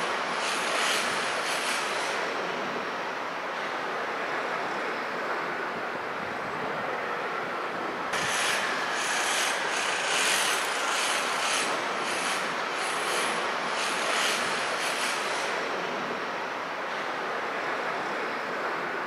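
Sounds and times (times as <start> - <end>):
jet engines rushing: 0.0 - 19.0
pulsing high hiss: 8.1 - 15.6.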